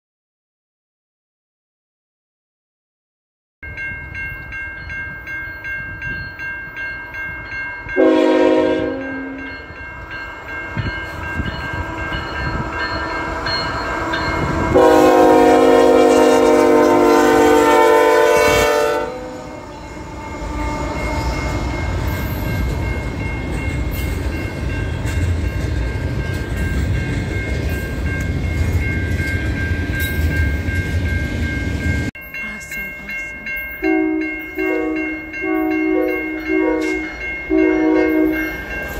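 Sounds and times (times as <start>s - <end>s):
level crossing bell ringing: 3.6s - 15.4s, 18.7s - 38.9s
train rumbling past: 3.6s - 38.9s
locomotive air horn chord: 8.0s - 9.5s, 14.7s - 19.7s, 33.9s - 38.5s
wheels clacking on rail joints: 19.8s - 32.1s.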